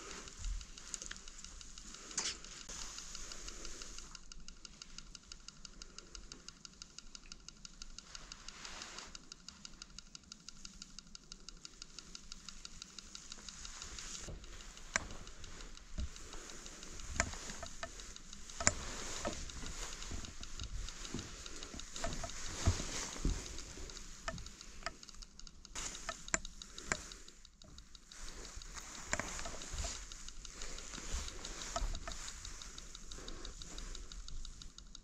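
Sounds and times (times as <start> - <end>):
faint fast ticking: 0.0 - 35.0
sharp clicks: 0.0 - 35.0
rustling through brush: 13.1 - 25.0, 25.8 - 34.4.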